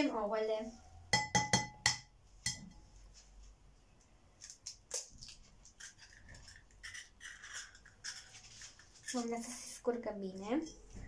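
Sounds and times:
egg tapping on plate rim: 1.2s - 2.7s
plate ringing: 1.2s - 2.8s
eggshell crackling: 4.4s - 9.4s.

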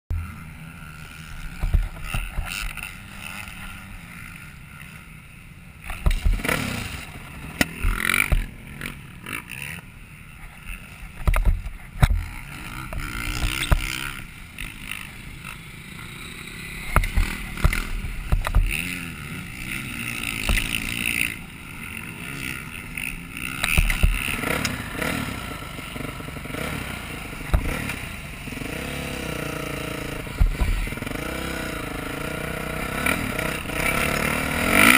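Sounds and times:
dirt bike engine revving: 0.1s - 34.9s
knocks and thumps over bumps: 5.9s - 6.4s, 11.2s - 12.3s, 16.9s - 18.8s, 20.4s - 20.9s, 23.6s - 24.3s, 30.4s - 30.8s.

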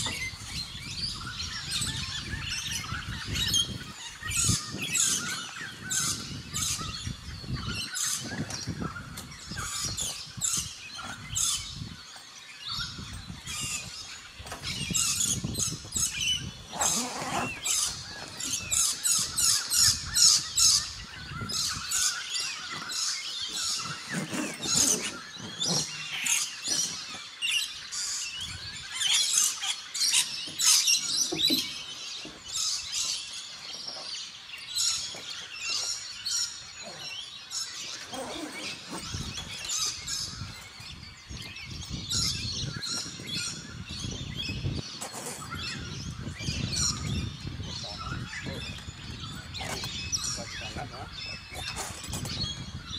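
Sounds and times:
birds chirping: 0.0s - 52.9s
tent canvas rustling: 16.6s - 18.7s, 22.6s - 27.2s, 37.9s - 40.0s.

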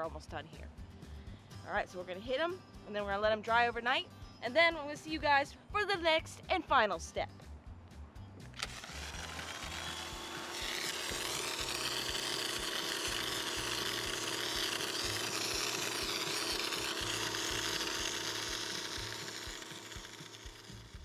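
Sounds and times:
pressure washer pump hum: 8.6s - 21.0s.

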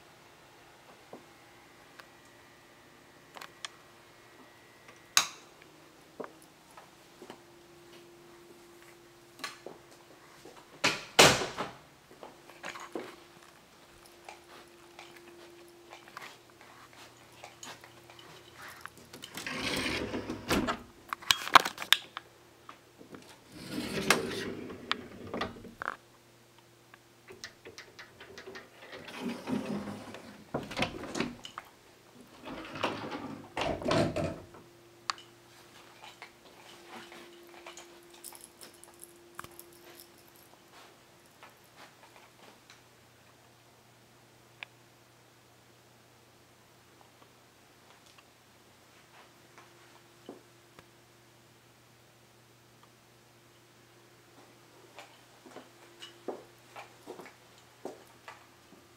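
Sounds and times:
faint steady hum: 0.0s - 58.9s
rustling and scraping: 14.3s - 20.6s, 23.1s - 26.0s.

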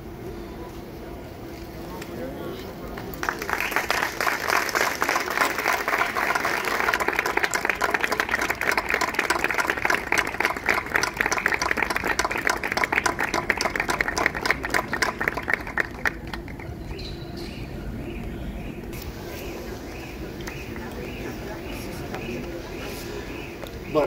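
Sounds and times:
audience applauding: 3.0s - 16.8s.

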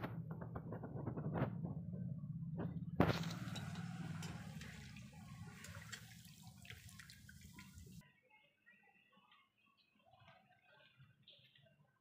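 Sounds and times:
food deep-frying in oil: 3.0s - 8.0s.

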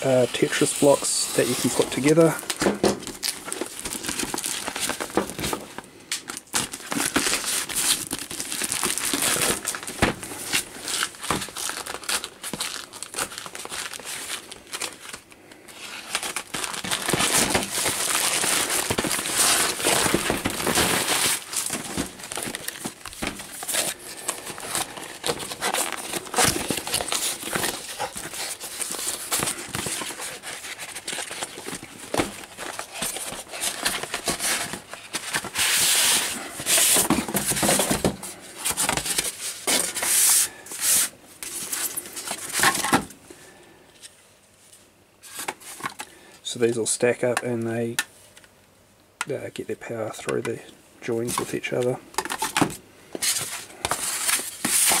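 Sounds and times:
plastic packaging crinkling: 0.0s - 43.2s, 51.2s - 55.0s.

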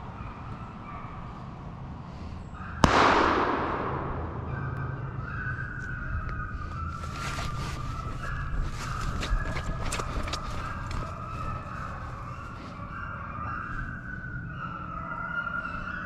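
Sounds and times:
shotgun shot: 2.8s - 5.7s.

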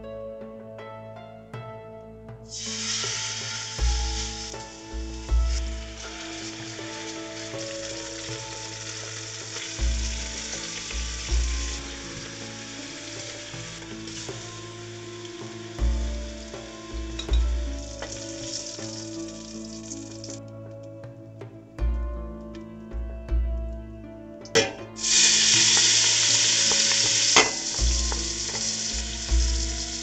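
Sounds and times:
chicken sizzling in oil: 2.5s - 20.4s, 24.6s - 30.0s
metal tongs turning meat: 24.6s - 30.0s.

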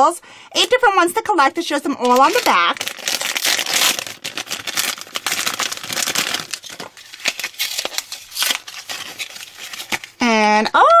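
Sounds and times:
crinkly paper wrapping handled: 2.0s - 10.2s
foil bag crinkling as torn open: 2.0s - 10.2s.

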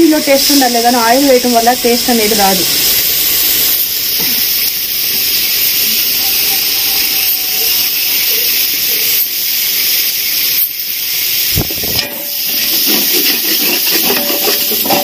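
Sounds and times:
food sizzling in a pot: 0.0s - 15.0s
metal spatula stirring in pot: 12.0s - 15.0s.

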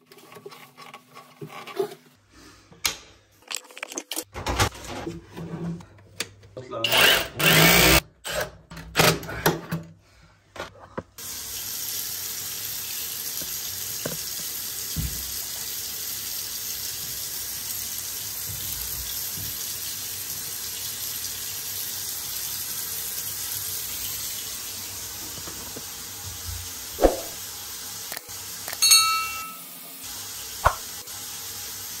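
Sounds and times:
cordless drill running: 6.9s - 8.0s
faucet pouring water into sink: 11.2s - 27.4s.

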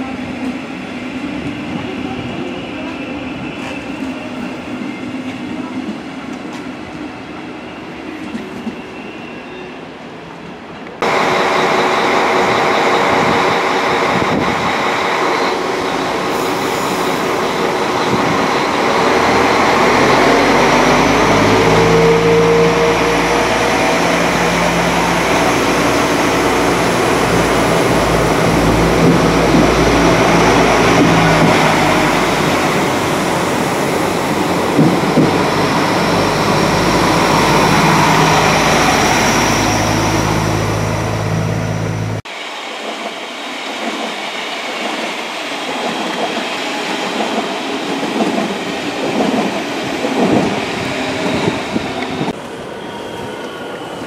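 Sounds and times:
diesel train engines running: 11.0s - 43.5s
train wheels clattering on rails: 25.7s - 38.2s, 42.8s - 52.4s.

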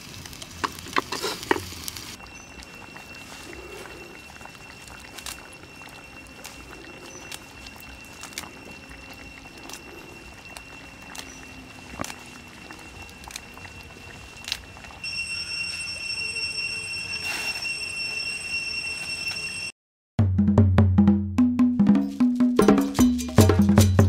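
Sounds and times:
fire popping and crackling: 0.0s - 15.1s
stew simmering: 0.0s - 16.3s
high-pitched whine: 2.1s - 19.7s.

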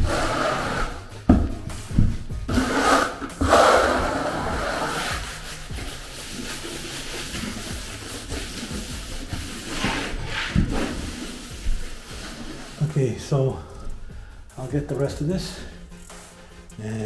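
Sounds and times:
trowel scraping over membrane: 0.0s - 1.1s, 2.5s - 13.1s
background music: 0.0s - 17.0s.

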